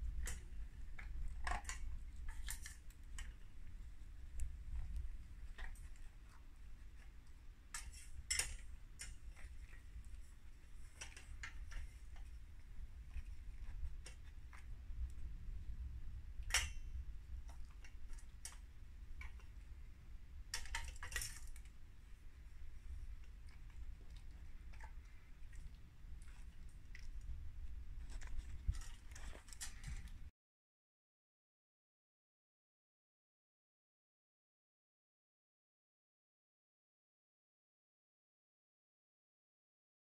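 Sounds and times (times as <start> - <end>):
cat crunching kibble: 0.0 - 30.3.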